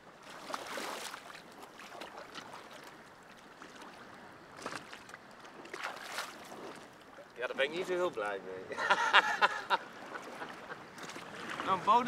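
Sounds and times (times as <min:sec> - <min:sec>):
water sloshing and splashing: 0:00.0 - 0:08.4, 0:09.4 - 0:12.0
sharp water splash: 0:00.2 - 0:02.8, 0:04.6 - 0:06.9.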